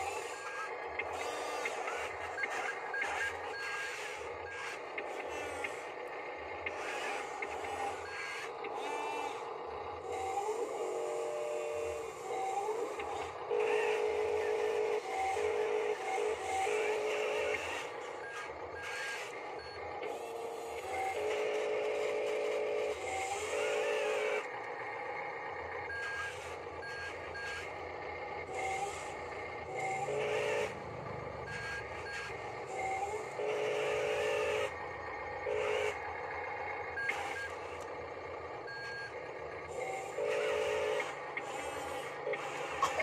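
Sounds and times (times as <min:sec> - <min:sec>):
toy electric motor whine: 0:00.0 - 0:43.0
electronic reversing beeps: 0:25.9 - 0:27.7, 0:31.4 - 0:33.2, 0:36.9 - 0:37.8, 0:38.6 - 0:39.2.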